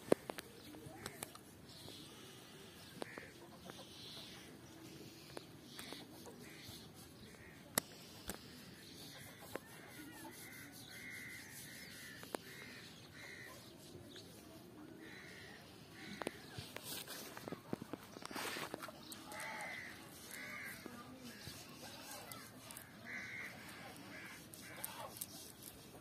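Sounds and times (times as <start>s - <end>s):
rustling: 16.0s - 26.0s.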